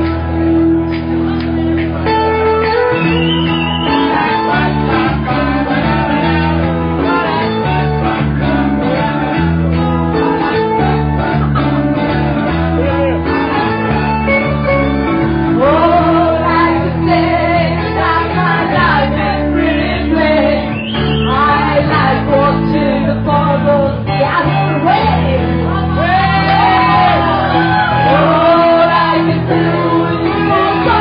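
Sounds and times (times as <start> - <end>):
band playing chords: 0.0 - 31.0
woman singing into microphone: 15.5 - 31.0.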